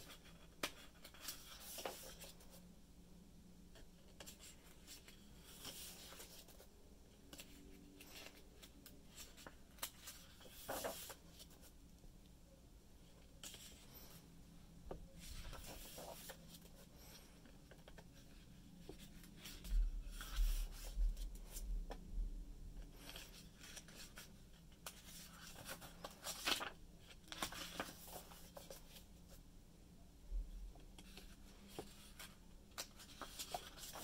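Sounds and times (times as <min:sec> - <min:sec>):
book pages rustling: 0:00.0 - 0:02.6, 0:04.0 - 0:06.7, 0:07.3 - 0:11.7, 0:15.2 - 0:21.6, 0:22.9 - 0:29.3, 0:31.0 - 0:34.0.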